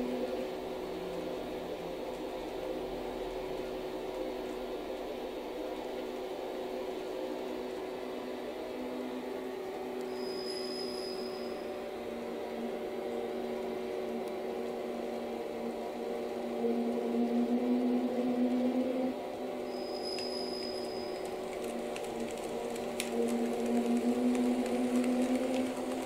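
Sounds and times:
wheels rolling on rails: 19.7s - 26.0s.

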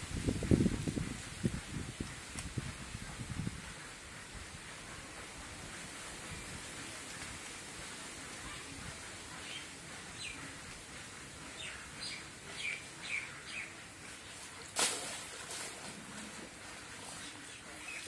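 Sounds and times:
steady outdoor hiss: 0.0s - 18.0s
small birds chirping: 9.3s - 10.7s, 11.4s - 14.4s.

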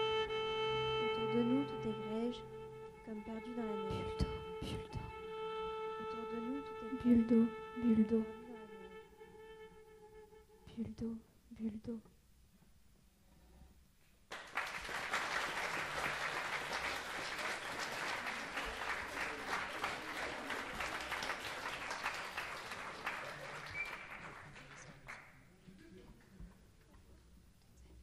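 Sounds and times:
audience applauding: 14.3s - 25.4s.

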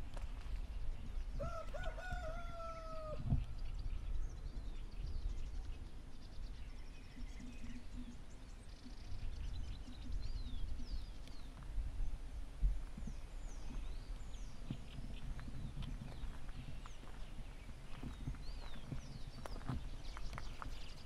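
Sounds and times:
small birds chirping: 0.0s - 21.0s
rooster crowing: 1.4s - 3.2s.

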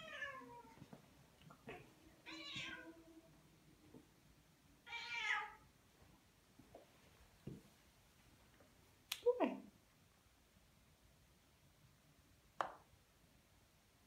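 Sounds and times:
cat meowing: 0.0s - 0.7s, 1.7s - 3.0s, 4.9s - 5.6s.

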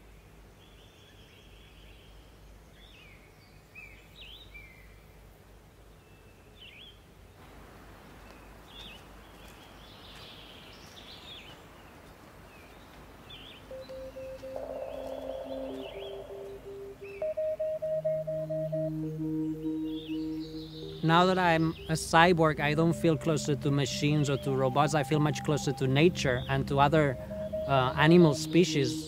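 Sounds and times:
outdoor ambience hiss: 0.0s - 29.0s
birds chirping: 8.2s - 29.0s
pulsing electronic tone: 13.7s - 29.0s.

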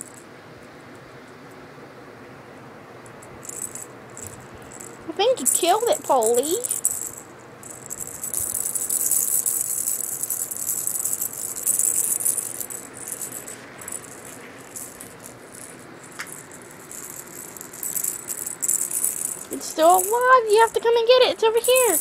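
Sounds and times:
cat toy rattling: 3.1s - 22.0s.

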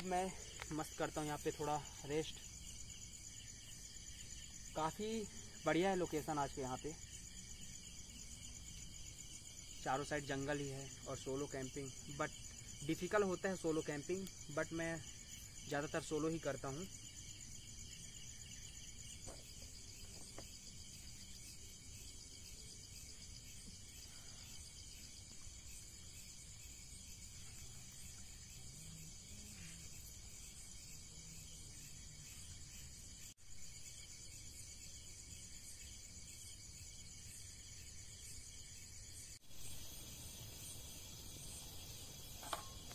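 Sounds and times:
night insects chirring: 0.0s - 42.9s.

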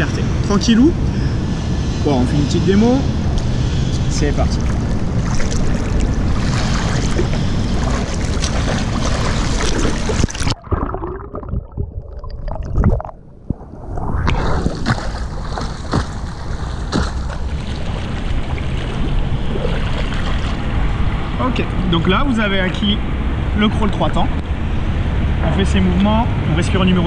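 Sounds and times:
swimmer splashing: 4.5s - 11.4s, 13.6s - 20.9s
underwater bubbles: 4.6s - 20.7s.

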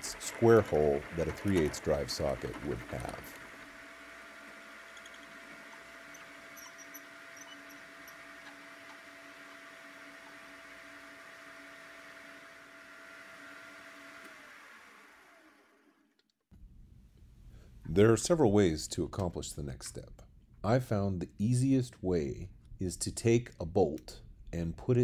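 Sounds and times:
metal lathe whining: 0.0s - 15.8s.

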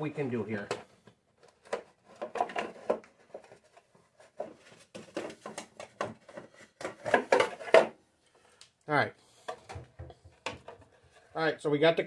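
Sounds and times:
plastic cover knocking and scraping: 0.4s - 8.0s, 9.4s - 11.3s.

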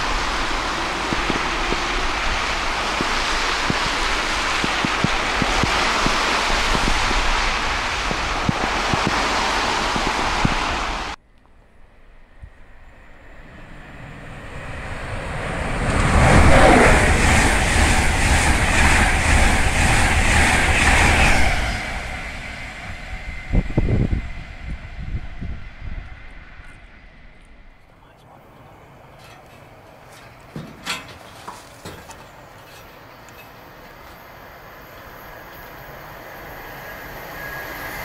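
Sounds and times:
train wheels on rails rhythm: 0.0s - 11.2s, 13.8s - 26.6s
wind buffeting microphone: 0.0s - 11.2s, 12.2s - 27.8s
train passing at speed: 0.0s - 38.0s.

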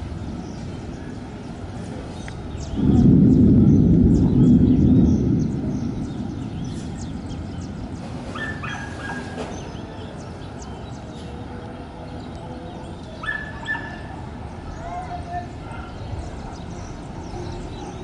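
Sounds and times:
thunder rumbling: 0.0s - 10.8s
steady low noise: 0.0s - 13.2s
dog yipping and barking: 8.3s - 9.4s, 13.2s - 14.1s.

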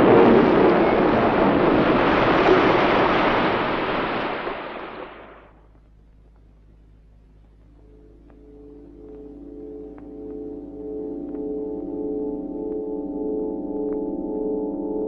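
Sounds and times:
sea surf washing: 0.0s - 5.5s
faint background noise: 5.3s - 15.0s.

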